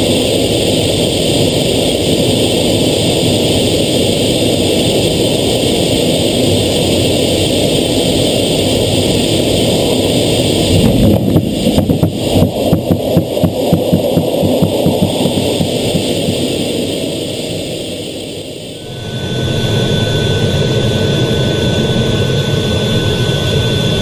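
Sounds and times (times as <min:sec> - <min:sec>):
jet engines roaring in cockpit: 0:00.0 - 0:24.0
jet slamming onto deck: 0:10.6 - 0:13.8.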